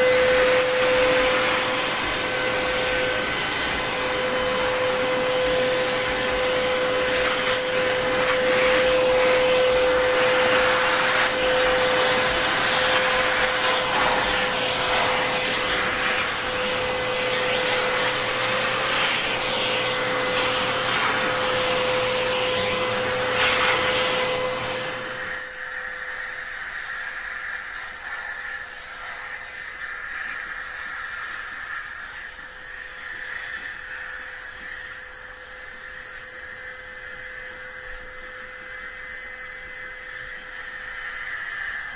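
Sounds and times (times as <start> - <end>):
vacuum cleaner running: 0.0 - 41.9.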